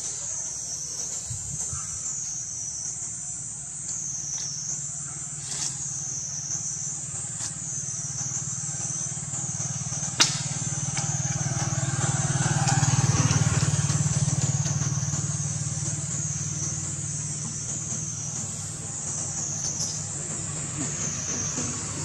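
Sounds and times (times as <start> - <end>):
high drone of insects: 0.0 - 22.0
vehicle engine passing by: 5.0 - 22.0.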